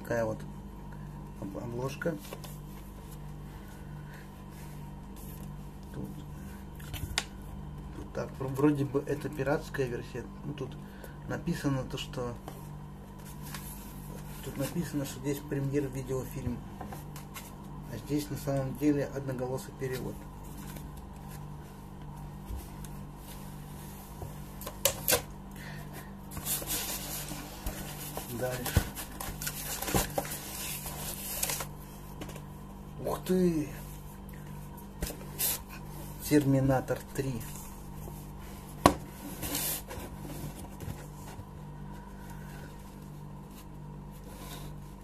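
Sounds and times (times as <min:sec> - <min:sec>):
steady low hum: 0:00.0 - 0:45.0
handling noise of objects: 0:19.8 - 0:32.5
paper rustling: 0:26.3 - 0:32.4.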